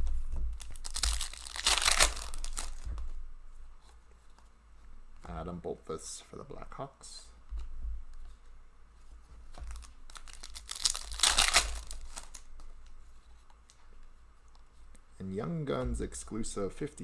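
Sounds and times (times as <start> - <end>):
rustling of wrapper and cards: 0.0 - 3.2, 9.4 - 13.9
wrapper tearing open: 0.6 - 2.8, 9.7 - 12.5
foil wrapper crinkling: 0.6 - 2.9, 9.6 - 12.5.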